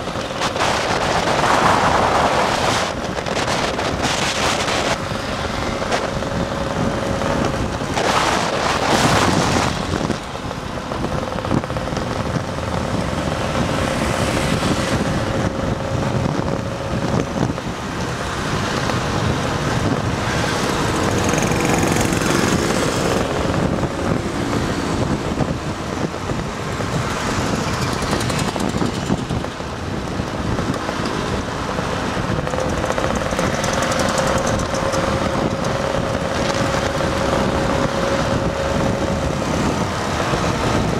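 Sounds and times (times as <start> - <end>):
scooter engines droning: 0.0 - 40.9
wind noise on microphone: 0.0 - 40.9.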